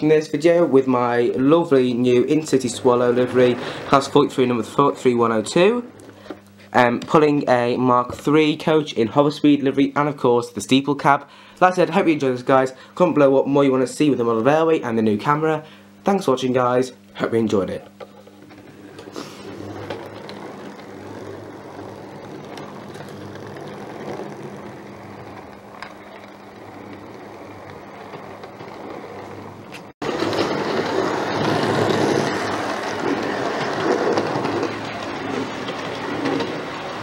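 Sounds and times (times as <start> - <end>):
train running: 0.6 - 6.3, 18.7 - 37.0
rumbling train: 2.1 - 6.0, 26.4 - 37.0.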